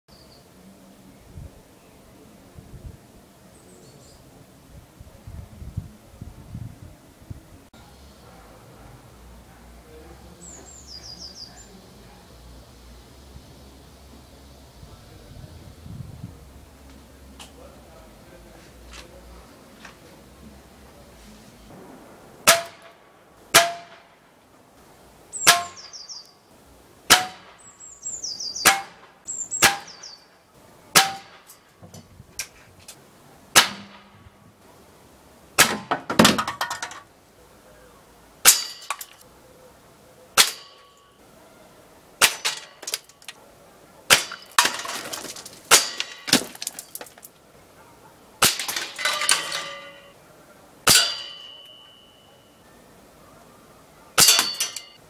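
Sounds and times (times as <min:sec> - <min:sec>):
air rifle shots: 0:21.7 - 0:24.3, 0:27.1 - 0:27.7, 0:28.6 - 0:30.2, 0:30.9 - 0:31.6, 0:33.5 - 0:34.3
pellets clanging on tin cans: 0:36.2 - 0:37.1, 0:38.5 - 0:39.2, 0:42.2 - 0:43.3, 0:44.1 - 0:47.3, 0:48.4 - 0:50.2, 0:54.2 - 0:55.0.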